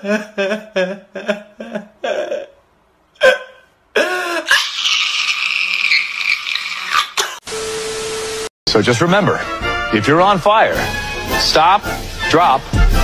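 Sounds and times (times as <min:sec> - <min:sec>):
man sobbing and wailing: 0:00.0 - 0:05.8.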